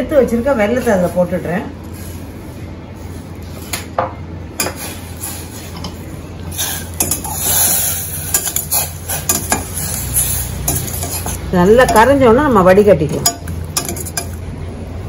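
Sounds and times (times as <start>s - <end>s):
skimmer clinking against saucepan: 6.8s - 12.3s, 13.1s - 14.4s.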